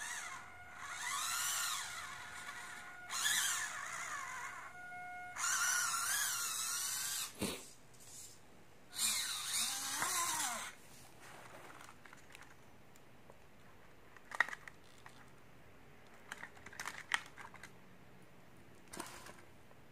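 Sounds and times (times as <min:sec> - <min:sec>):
small electric motor whining: 0:00.0 - 0:07.4, 0:08.9 - 0:10.8
clicks and knocks of handling: 0:16.0 - 0:17.8.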